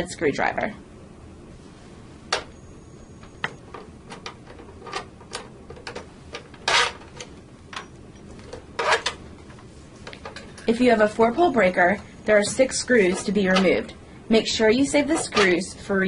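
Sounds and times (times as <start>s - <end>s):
screwdriver scraping: 4.1s - 7.3s, 8.8s - 9.2s.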